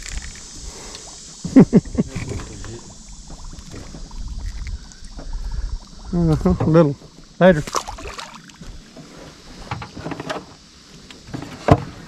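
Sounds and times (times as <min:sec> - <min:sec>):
fish slapping and knocking: 0:07.6 - 0:08.7.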